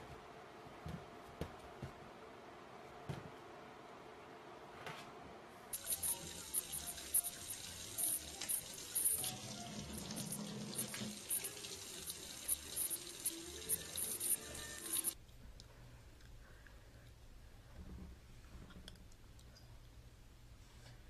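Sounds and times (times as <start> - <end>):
water drips: 5.8 - 15.2
water running and splashing: 5.8 - 15.2.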